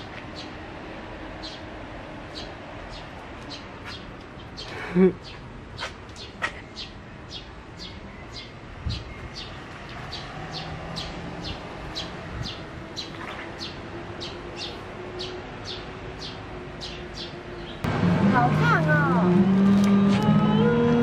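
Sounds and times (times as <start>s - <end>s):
bird chirping: 2.3s - 17.8s.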